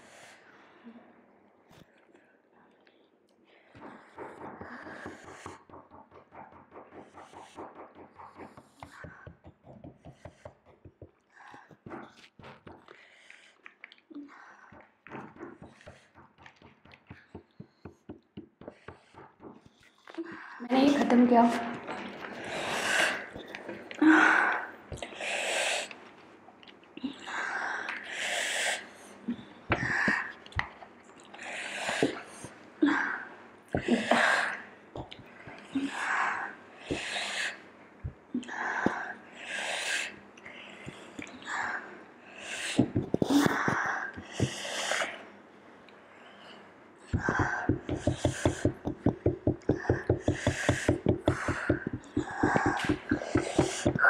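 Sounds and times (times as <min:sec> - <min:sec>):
person breathing hard through mouth: 0:03.5 - 0:05.8, 0:35.2 - 0:45.2, 0:46.3 - 0:54.0.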